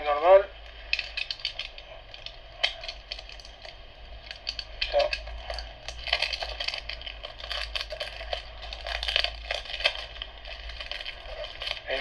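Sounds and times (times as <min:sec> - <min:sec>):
packaging crinkling: 0:00.6 - 0:12.0
small clicks and crackles: 0:00.6 - 0:12.0.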